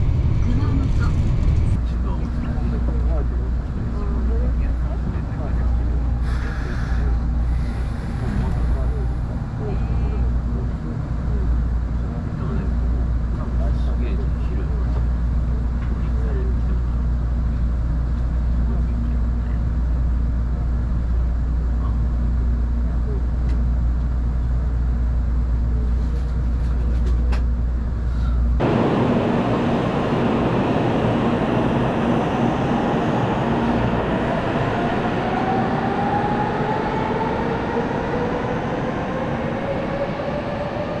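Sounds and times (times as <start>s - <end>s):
running train noise: 0.0s - 41.0s
steady low rumble: 0.0s - 41.0s.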